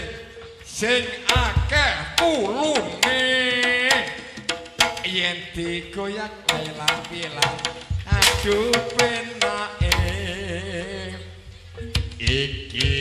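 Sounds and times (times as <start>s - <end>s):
sharp hand-drum strokes: 1.2s - 5.8s, 6.4s - 10.2s.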